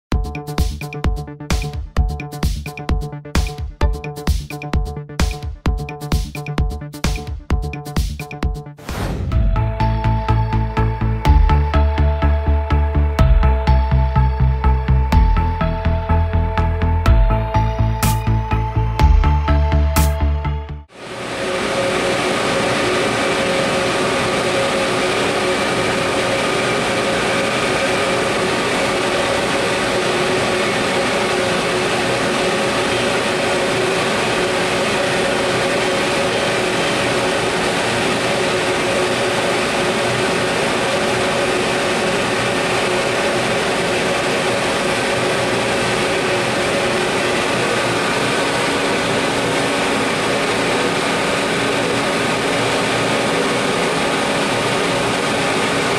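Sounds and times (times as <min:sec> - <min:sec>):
cooling fans: 0:20.9 - 0:55.9
electric locomotive whir: 0:20.9 - 0:55.9.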